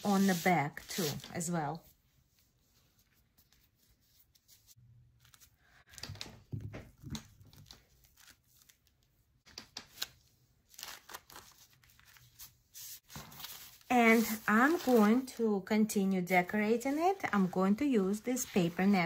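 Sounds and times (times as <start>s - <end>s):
paper rustling: 7.2s - 15.3s.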